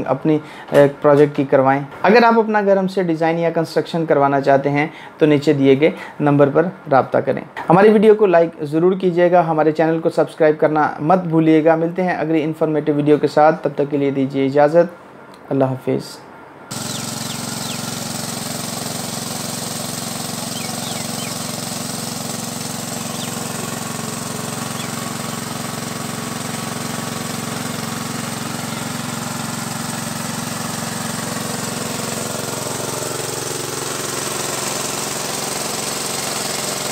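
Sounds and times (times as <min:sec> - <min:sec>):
small engine running steadily: 0:16.7 - 0:36.9.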